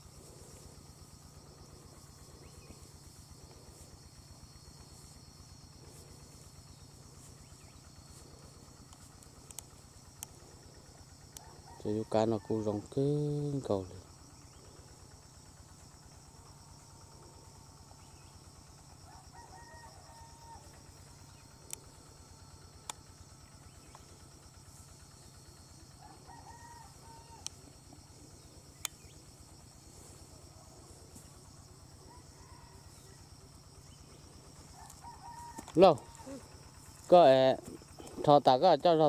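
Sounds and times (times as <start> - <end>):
high insect hum: 0.0 - 39.0
rooster crowing faintly: 11.0 - 13.0, 19.0 - 21.1, 25.8 - 28.1, 31.9 - 33.6, 34.6 - 36.6.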